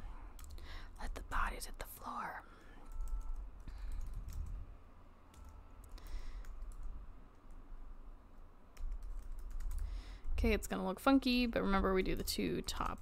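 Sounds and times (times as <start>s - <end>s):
keyboard keys clicking: 2.8s - 4.6s, 5.3s - 7.6s, 8.8s - 9.9s, 12.0s - 13.0s.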